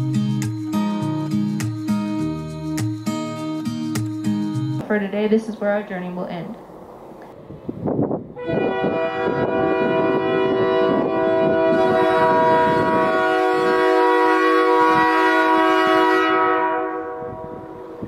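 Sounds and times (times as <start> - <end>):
train horn blast: 8.3 - 18.0.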